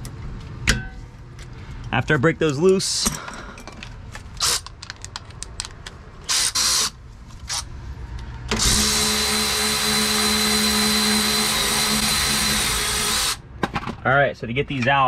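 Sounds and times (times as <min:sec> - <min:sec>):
cordless power tool whining: 0:08.5 - 0:13.4.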